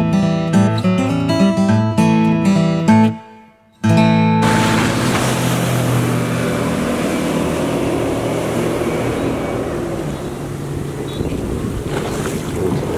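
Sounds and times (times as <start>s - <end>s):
boat engine hum: 4.4s - 12.9s
water rushing and spray: 4.4s - 12.9s.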